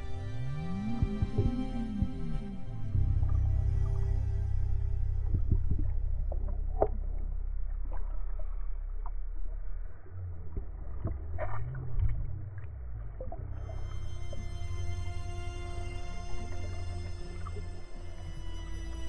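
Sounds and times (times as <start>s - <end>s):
background music: 0.0s - 7.0s, 13.6s - 19.0s
low rising and falling tone: 0.0s - 19.0s
muffled underwater rumble: 0.0s - 19.0s
underwater clicks and taps: 5.2s - 7.0s.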